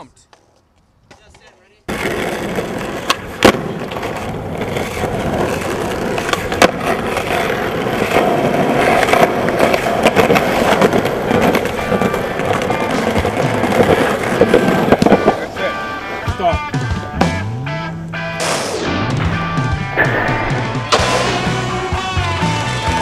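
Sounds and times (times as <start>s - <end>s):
skateboard wheels rolling on asphalt: 0.0s - 18.4s, 19.3s - 23.0s
skateboard clacks: 0.3s - 17.2s.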